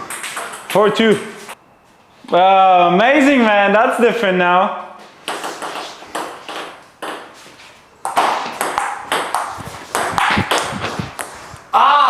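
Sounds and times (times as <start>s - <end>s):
table tennis ball hits: 0.0s - 0.8s, 5.2s - 7.4s, 8.0s - 11.3s.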